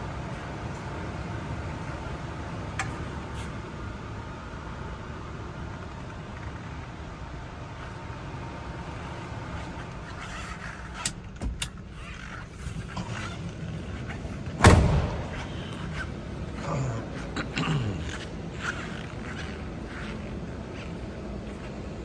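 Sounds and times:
steady low rumble: 0:10.8 - 0:22.0
car door thump: 0:14.6 - 0:15.3.

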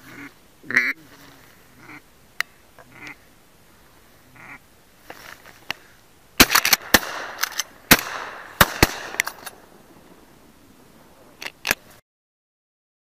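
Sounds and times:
gunshot echo: 0:06.4 - 0:09.5
shotgun blasts: 0:06.4 - 0:09.6.

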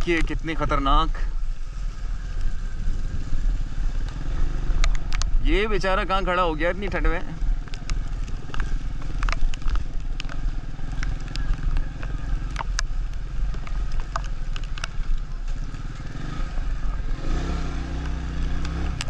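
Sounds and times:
small motorcycle engine running: 0:06.2 - 0:19.0
sharp clicks: 0:07.7 - 0:15.3.

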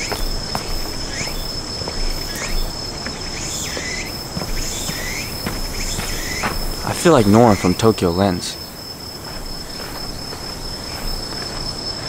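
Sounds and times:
insects droning: 0:00.0 - 0:12.0
short chirping calls: 0:03.4 - 0:08.6.

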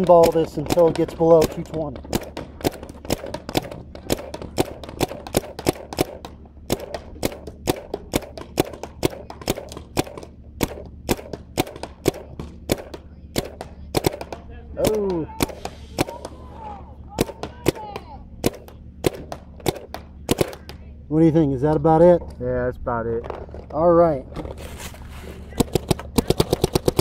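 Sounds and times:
paintball marker firing pops: 0:00.0 - 0:16.4, 0:17.2 - 0:20.9, 0:25.6 - 0:27.0.

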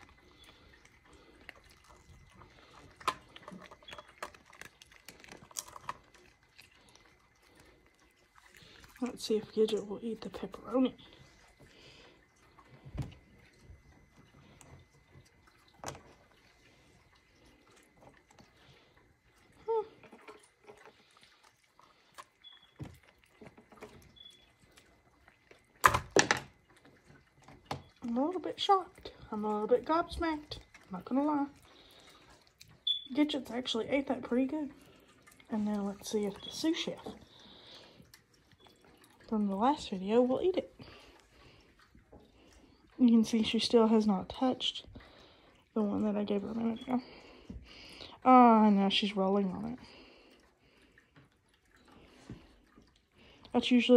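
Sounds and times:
dog crunching treats: 0:01.0 - 0:09.2.

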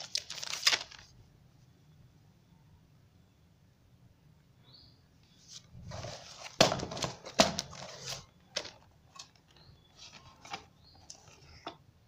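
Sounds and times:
shrink-wrap crinkling: 0:00.0 - 0:01.1.

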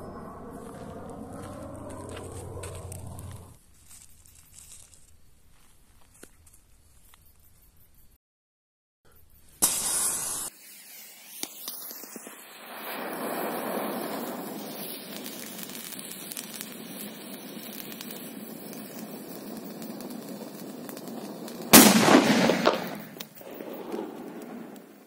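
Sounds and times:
firecracker fuse hissing: 0:09.6 - 0:25.0.

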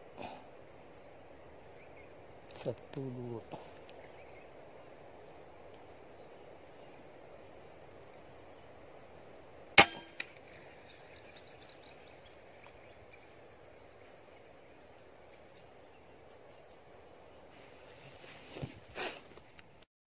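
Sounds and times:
low steady hiss: 0:00.0 - 0:19.9
air rifle shot: 0:09.8 - 0:10.4.

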